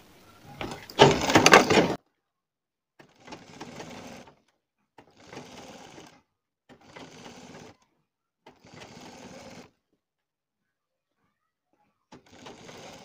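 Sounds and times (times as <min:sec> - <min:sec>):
sewing machine stitching: 0:00.4 - 0:02.0, 0:03.0 - 0:09.8, 0:12.1 - 0:13.0
loud clatter: 0:00.5 - 0:02.0.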